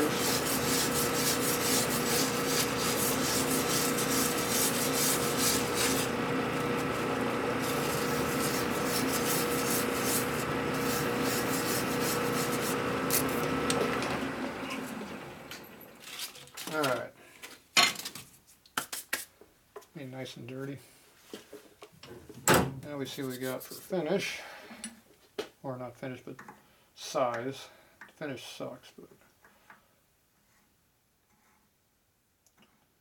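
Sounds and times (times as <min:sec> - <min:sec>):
file rasping on metal: 0:00.0 - 0:13.5
lathe motor and gear whine: 0:00.0 - 0:16.0.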